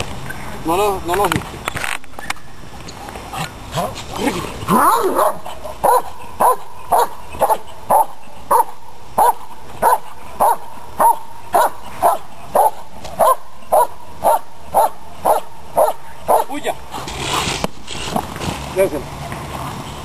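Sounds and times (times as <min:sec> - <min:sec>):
dog barking: 0:04.8 - 0:16.6.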